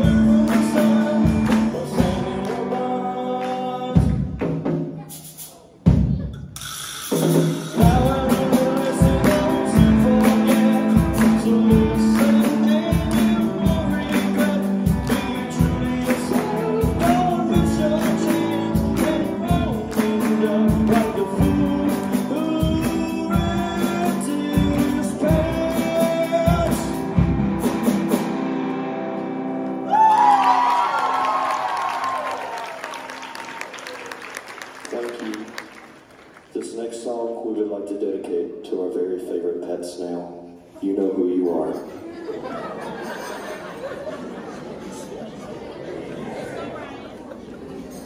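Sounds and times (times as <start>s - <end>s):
drum kit: 0.0s - 28.6s
electric guitar: 7.8s - 30.7s
audience applauding and cheering: 29.6s - 36.6s.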